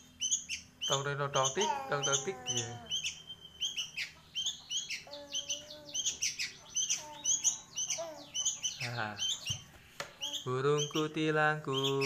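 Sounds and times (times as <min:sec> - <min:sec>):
young bird chirping: 0:00.0 - 0:12.0.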